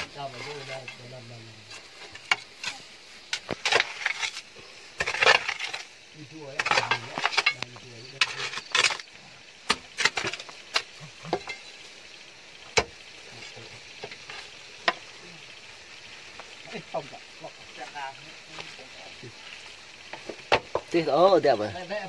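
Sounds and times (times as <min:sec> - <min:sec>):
digging tool scraping dirt: 0:00.0 - 0:11.7.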